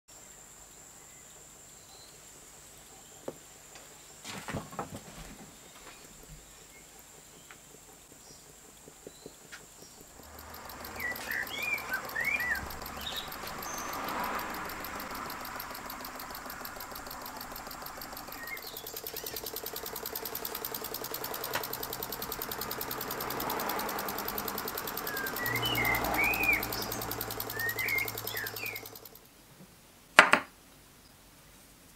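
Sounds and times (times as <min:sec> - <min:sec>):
birds chirping: 0:05.5 - 0:29.2
model steam engine running: 0:06.2 - 0:29.3
light clicks: 0:09.1 - 0:29.2.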